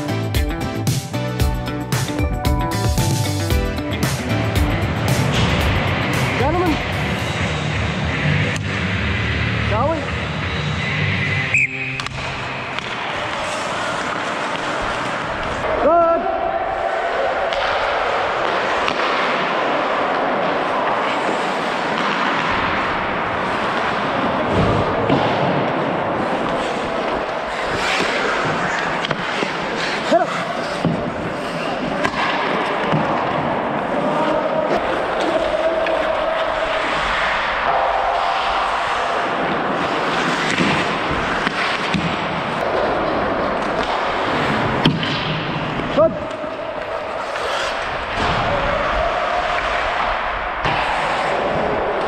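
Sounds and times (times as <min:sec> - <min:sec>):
hockey sticks and puck clacking: 0:04.0 - 0:16.2, 0:16.8 - 0:52.0
skates scraping on ice: 0:04.9 - 0:16.0, 0:16.7 - 0:52.0
ice skate blades scraping ice: 0:11.0 - 0:15.6, 0:26.2 - 0:32.3, 0:38.6 - 0:44.9, 0:46.8 - 0:48.2.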